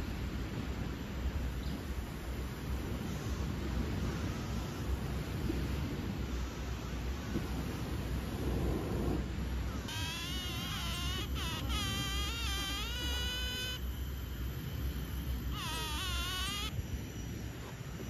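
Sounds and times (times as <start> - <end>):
steady low rumble: 0.0 - 10.6
cat meowing: 15.5 - 16.7.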